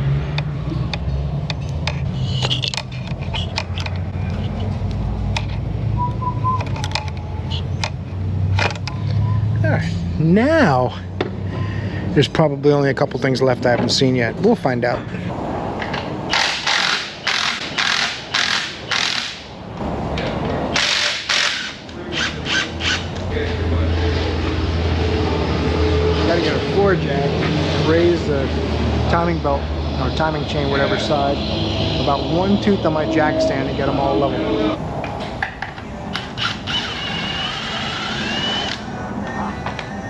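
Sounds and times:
hand tools clicking and tapping: 0.4s - 5.6s
ratchet wrench clicking: 16.3s - 19.5s, 20.8s - 23.2s.

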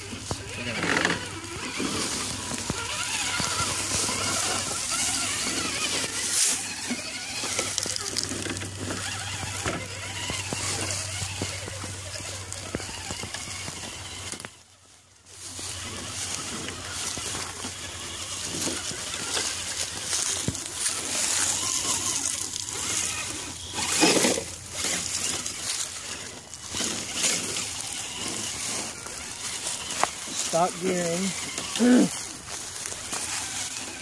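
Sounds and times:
dry grass rustling and crunching: 0.0s - 34.0s.

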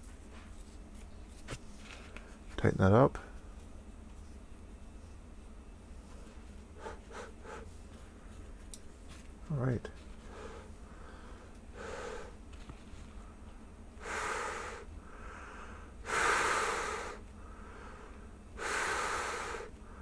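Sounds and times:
person breathing through respirator: 10.2s - 12.4s, 14.0s - 20.0s.

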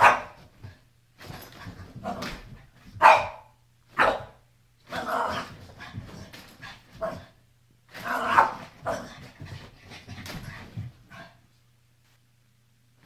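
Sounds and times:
small dog barking: 0.0s - 0.4s, 3.0s - 4.4s, 8.2s - 9.1s.

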